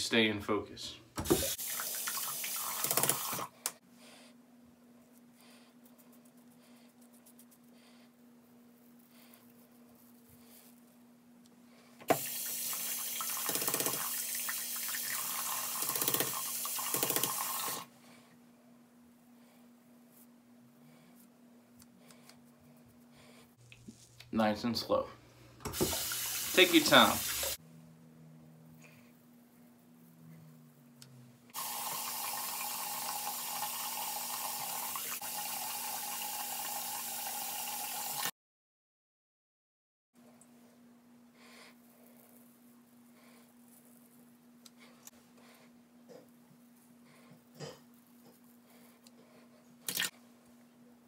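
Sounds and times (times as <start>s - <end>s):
sink tap running: 1.2s - 3.5s, 12.1s - 17.9s, 25.6s - 27.6s, 31.6s - 38.3s
razor rinsed under running water: 1.2s - 3.8s, 12.1s - 17.9s, 23.6s - 27.6s, 31.5s - 38.3s.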